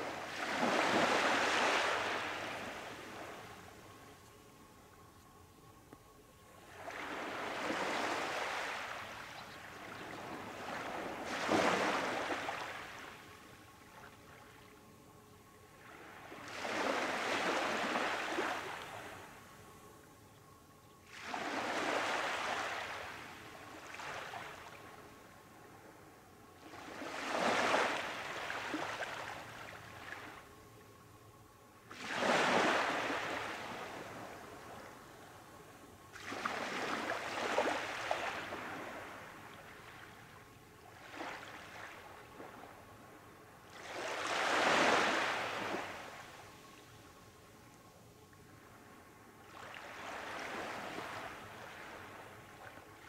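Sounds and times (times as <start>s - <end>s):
waves washing up a beach: 0.0s - 3.4s, 6.8s - 13.2s, 21.1s - 24.8s, 26.7s - 30.2s, 31.9s - 34.7s, 36.1s - 40.1s, 43.7s - 46.6s, 49.5s - 53.0s.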